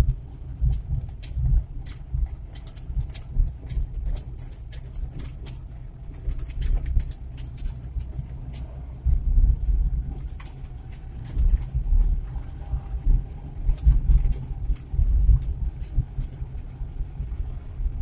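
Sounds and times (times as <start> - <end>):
engine running: 0.0 - 18.0
road rumble: 0.0 - 18.0.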